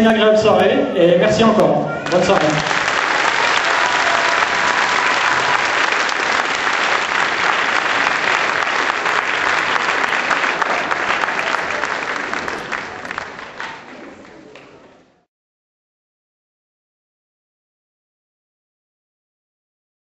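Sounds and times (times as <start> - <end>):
audience applauding: 2.0 - 14.8.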